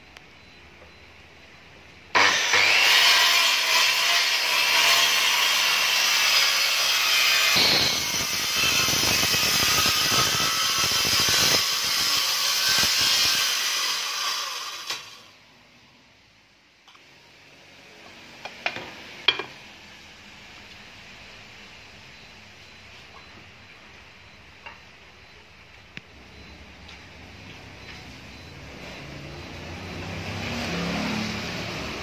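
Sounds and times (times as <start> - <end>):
circular saw cutting wood: 2.1 - 15.3, 29.4 - 32.0.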